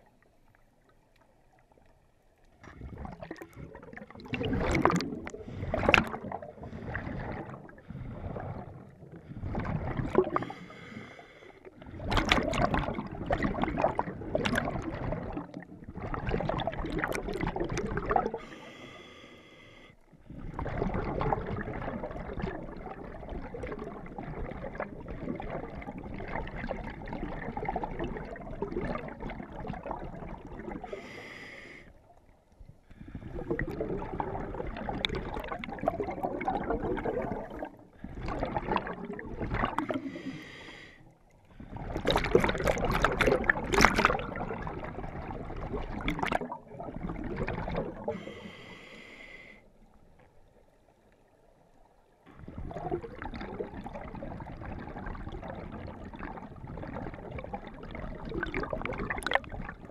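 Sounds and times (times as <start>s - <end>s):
exhaled bubbles underwater: 0.0s - 59.9s
regulator hissing inhale: 10.4s - 11.7s, 18.4s - 20.0s, 30.9s - 32.0s, 40.0s - 41.1s, 48.1s - 49.7s.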